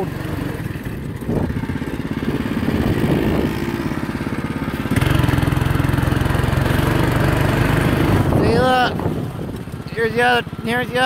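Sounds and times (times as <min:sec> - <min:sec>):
go-kart engine running: 0:00.0 - 0:11.0.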